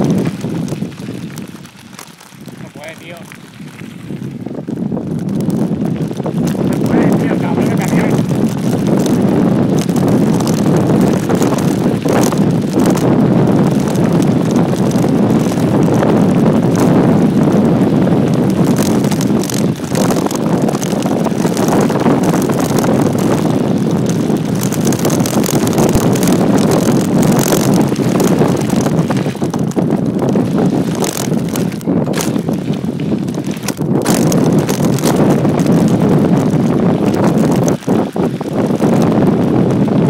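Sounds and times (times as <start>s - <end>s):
bike knocks and rattles: 0.0s - 40.0s
tyres rumbling over gravel: 0.0s - 40.0s
wind noise on microphone: 0.0s - 40.0s.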